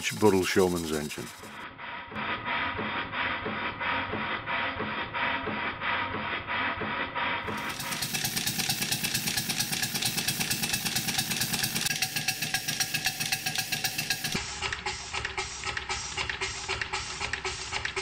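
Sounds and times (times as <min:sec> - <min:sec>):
model steam engine exhaust beating: 0:00.0 - 0:18.0.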